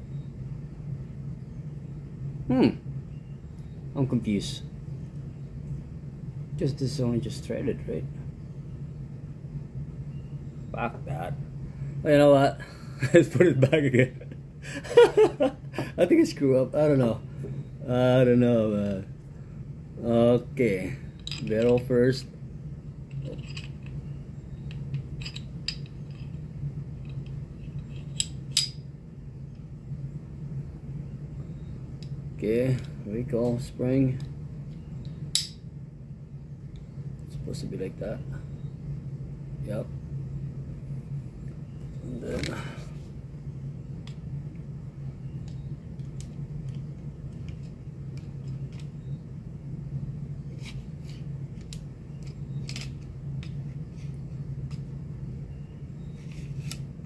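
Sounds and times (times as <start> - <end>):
low hum: 0.0 - 57.0
pistol parts clicking: 21.2 - 21.9, 34.7 - 35.6, 50.6 - 53.6.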